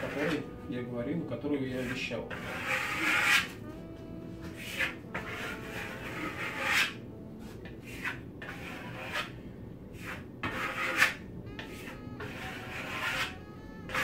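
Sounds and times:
steel trowel scraping plaster: 0:00.0 - 0:00.5, 0:01.7 - 0:03.6, 0:04.5 - 0:07.0, 0:07.6 - 0:09.3, 0:10.0 - 0:14.0.

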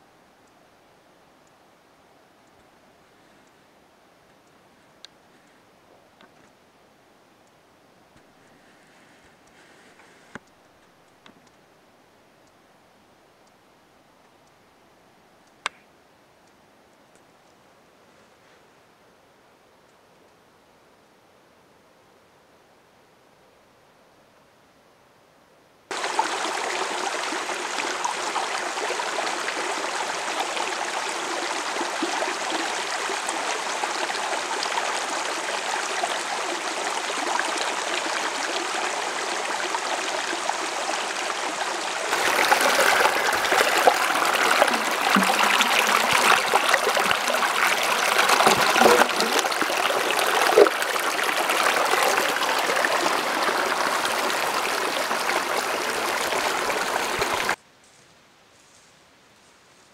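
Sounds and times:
creek trickling over rocks: 0:25.9 - 0:57.6
water gurgling: 0:25.9 - 0:57.6.

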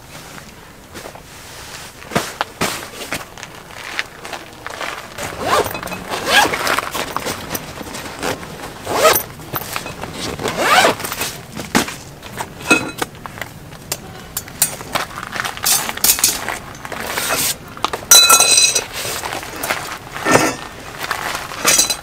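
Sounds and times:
fabric handling: 0:00.1 - 0:13.0
zipper being pulled open: 0:05.2 - 0:11.2.

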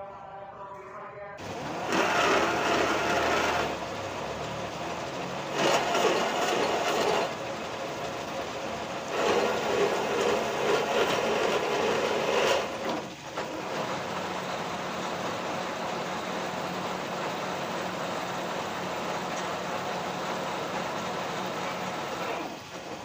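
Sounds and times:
lathe tool scraping steel: 0:01.4 - 0:14.7
lathe humming: 0:01.4 - 0:23.0.

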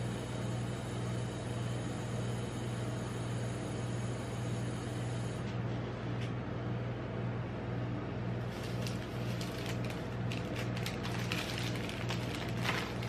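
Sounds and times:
steady low hum: 0:00.0 - 0:13.0
plastic wrappers crinkling: 0:08.4 - 0:13.0.

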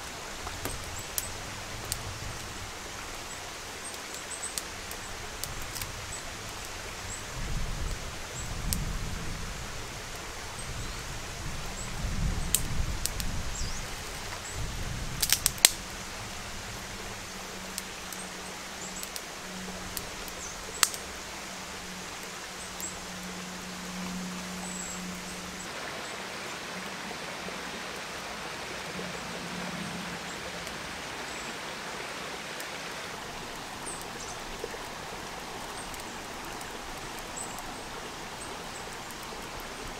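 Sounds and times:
fire crackling: 0:00.0 - 0:25.7, 0:32.6 - 0:39.9
steady outdoor hiss: 0:00.0 - 0:39.9
sharp pops from fire: 0:15.2 - 0:15.9, 0:20.8 - 0:21.1.

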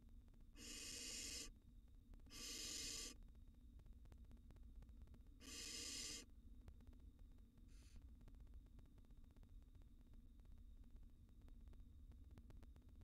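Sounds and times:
owl nestlings hissing: 0:00.6 - 0:01.5, 0:02.3 - 0:03.2, 0:05.4 - 0:06.2.

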